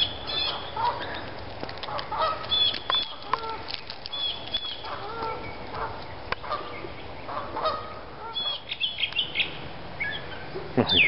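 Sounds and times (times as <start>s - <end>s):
geese honking: 0.0s - 1.2s, 1.8s - 9.4s.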